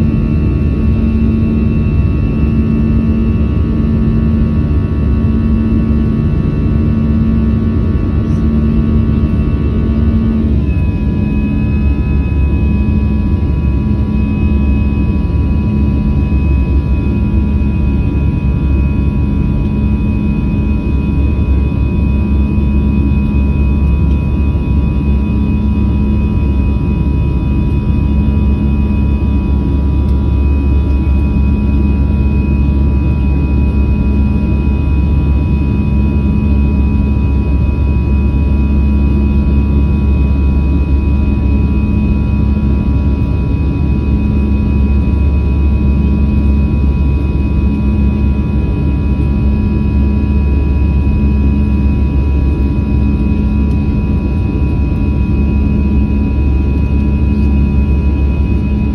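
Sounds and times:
airliner cabin drone: 0.0 - 58.9
faint whining tones: 0.1 - 19.6.

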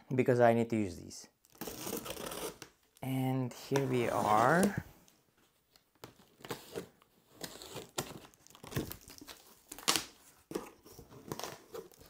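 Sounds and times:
packing tape being slit: 1.5 - 3.0, 6.3 - 12.0
cardboard flaps crinkling: 6.0 - 12.0.

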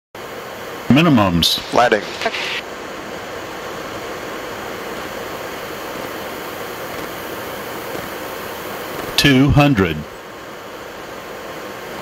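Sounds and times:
ventilation noise: 0.2 - 12.0
airflow rushing: 0.3 - 9.2.

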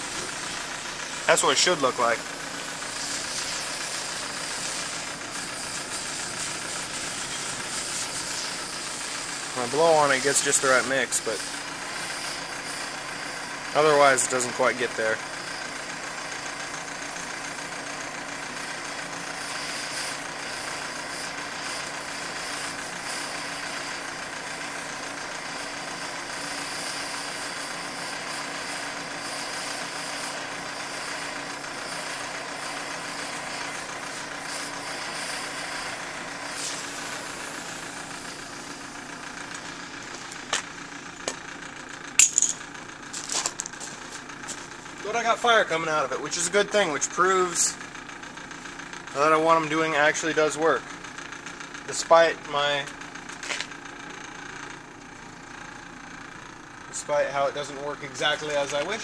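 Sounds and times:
gas jet nozzle rushing hum: 0.0 - 41.4
sharp metal clanks: 42.2 - 42.8.

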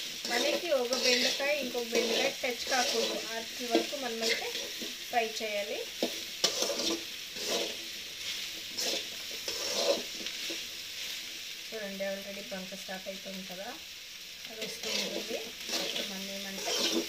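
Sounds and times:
metal spatula scraping pan: 0.0 - 5.0, 6.0 - 10.7, 14.6 - 17.0
soft sizzle of frying: 0.0 - 17.0.

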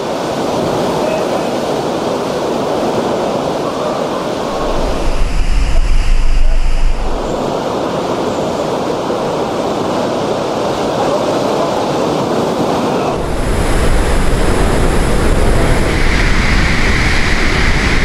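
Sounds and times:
wind and driving rain rushing: 4.1 - 8.2, 13.1 - 18.0
wind buffeting microphone: 4.2 - 8.2, 13.1 - 18.0.

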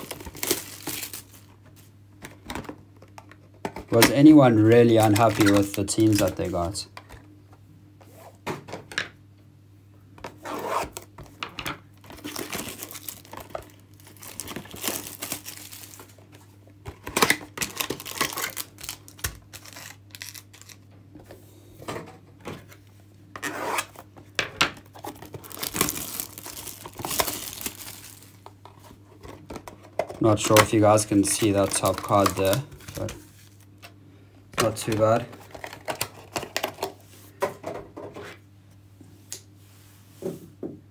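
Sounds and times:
plastic wrapping tearing and crinkling: 0.0 - 1.5, 4.9 - 6.6, 12.0 - 16.2, 17.0 - 20.8, 24.9 - 28.5, 30.3 - 33.8
cards and cardboard handled: 24.8 - 33.8.

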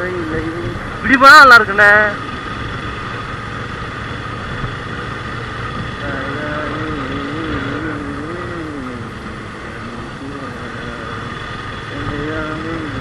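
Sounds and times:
motorcycle engine: 0.0 - 13.0
wind rumble: 0.0 - 13.0
wavering pitched tone: 6.0 - 13.0.

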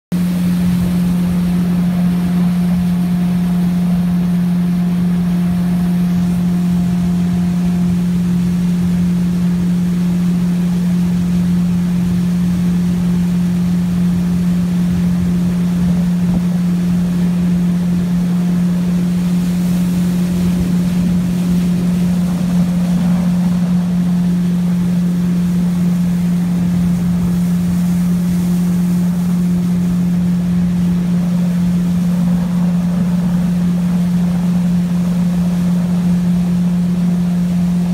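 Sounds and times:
boat engine drone: 0.1 - 37.9
steady low hum: 0.1 - 37.9.

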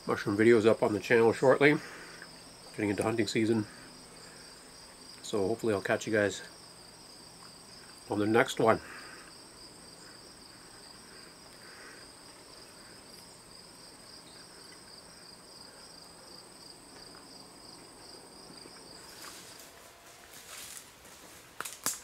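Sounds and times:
insects trilling: 0.0 - 22.0.

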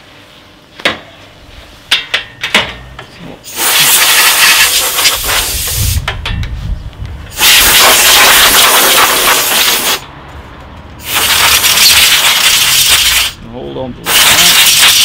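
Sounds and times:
compressed air blow gun hissing: 3.5 - 6.0, 7.3 - 10.0, 11.0 - 13.4, 14.0 - 15.0.

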